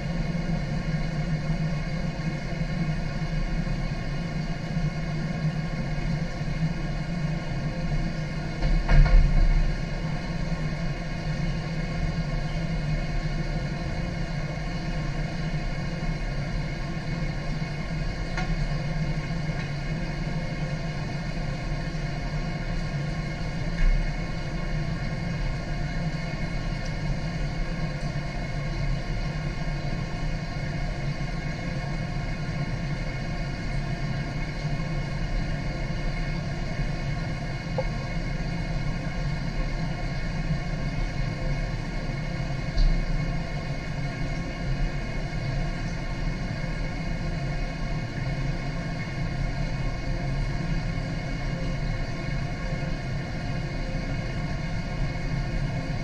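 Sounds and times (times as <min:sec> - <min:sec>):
low mechanical hum of pumps: 0:00.0 - 0:56.0.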